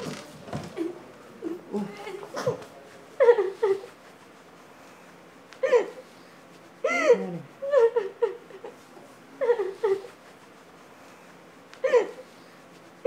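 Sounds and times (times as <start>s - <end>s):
woman sobbing: 3.2s - 3.9s, 5.6s - 6.0s, 6.8s - 8.8s, 9.4s - 10.2s, 11.8s - 12.3s.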